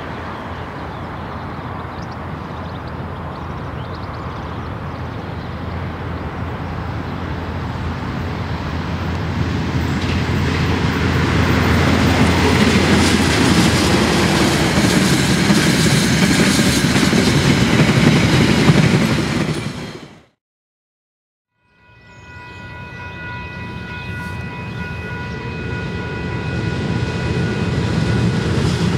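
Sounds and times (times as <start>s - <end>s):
locomotive engine hum: 0.0s - 20.2s, 23.0s - 28.9s
train wheels rumbling on rails: 0.0s - 20.4s, 23.6s - 28.9s.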